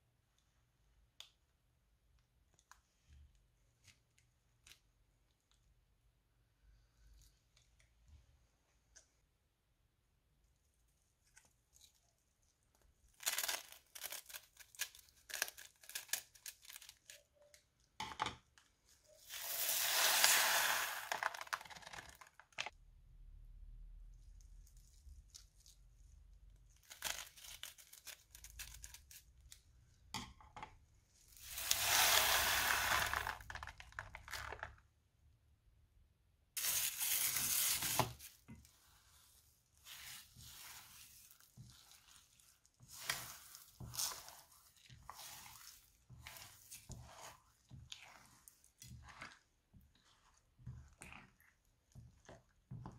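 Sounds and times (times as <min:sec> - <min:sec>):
beads pouring onto slime: 0:19.2 - 0:22.7, 0:31.3 - 0:34.8, 0:36.6 - 0:38.3
plastic bags crinkling: 0:36.6 - 0:38.4.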